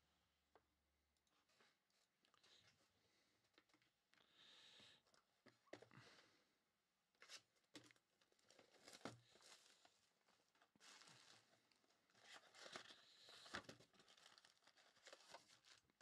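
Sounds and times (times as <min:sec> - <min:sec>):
plastic wrap crinkling and tearing: 0:07.8 - 0:16.0.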